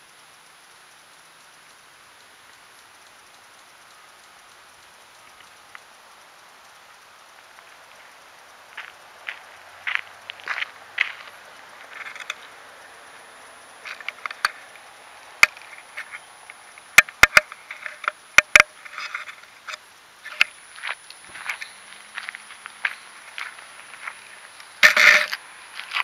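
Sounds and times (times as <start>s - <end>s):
footsteps crunching on dry ground: 7.4s - 12.7s, 13.7s - 16.6s, 20.3s - 26.0s
sharp clicks: 13.9s - 21.7s.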